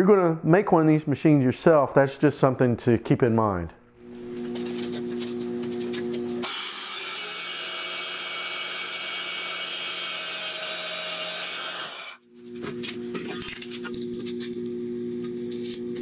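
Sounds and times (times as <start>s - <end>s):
bandsaw cutting steel: 6.4s - 12.2s.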